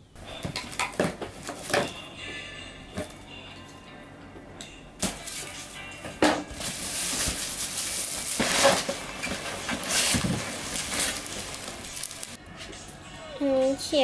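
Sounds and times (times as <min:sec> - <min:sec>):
packing tape ripping off cardboard: 0:06.5 - 0:12.4
plastic wrap crinkling: 0:06.5 - 0:12.4
cardboard flaps opening: 0:06.6 - 0:12.4.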